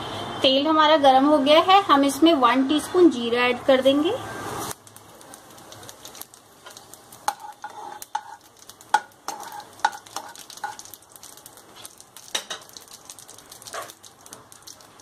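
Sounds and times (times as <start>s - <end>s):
faint oil sizzle: 0.0s - 15.0s
seeds popping and crackling in oil: 4.6s - 15.0s.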